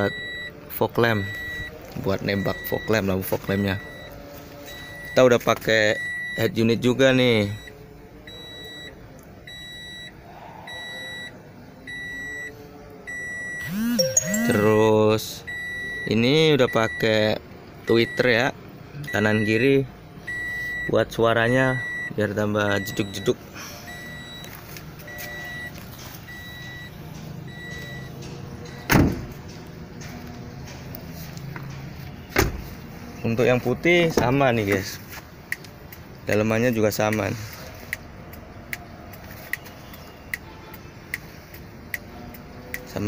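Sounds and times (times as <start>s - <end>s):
car warning beeps: 0.0s - 18.4s, 19.0s - 29.5s
car door shutting: 28.7s - 29.5s, 31.7s - 32.8s.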